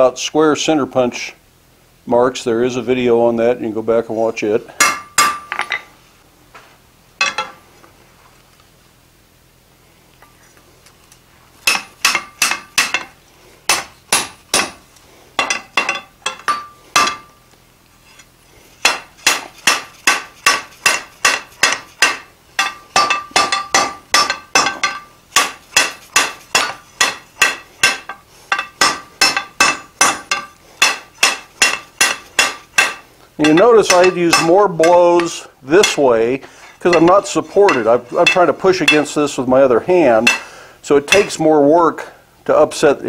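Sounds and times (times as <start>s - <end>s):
hammer ringing on hot steel: 4.8s - 5.6s, 15.4s - 17.4s, 18.8s - 36.1s, 36.9s - 39.2s, 40.2s - 40.5s.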